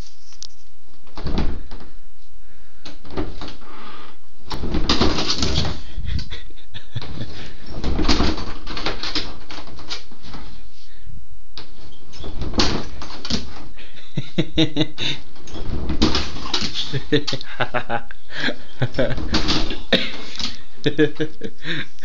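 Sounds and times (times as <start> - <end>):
man making laughing cooing noises: 5.8 - 7.5, 13.8 - 15.2, 16.8 - 22.0.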